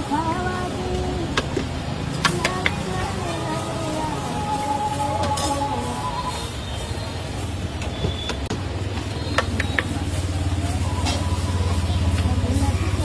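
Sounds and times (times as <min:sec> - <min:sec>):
pulsing engine-like hum: 0:08.1 - 0:13.0.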